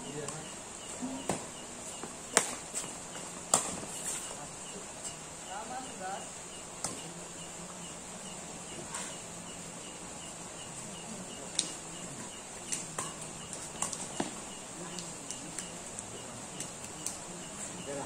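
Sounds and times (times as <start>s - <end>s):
faint regular chirp: 0.0s - 18.0s
insects chirring: 0.0s - 18.0s
rackets striking shuttlecock: 2.3s - 4.2s, 12.7s - 15.6s.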